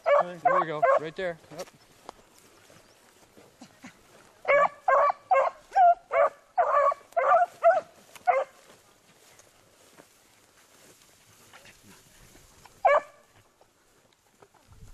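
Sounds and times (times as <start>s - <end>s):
hounds baying: 0.0s - 1.2s, 4.4s - 8.8s, 11.6s - 13.5s.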